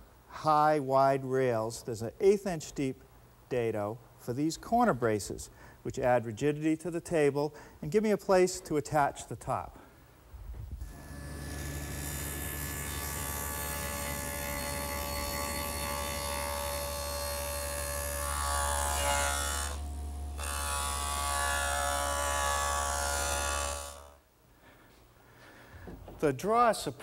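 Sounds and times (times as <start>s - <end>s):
table saw cutting wood: 10.8s - 24.2s.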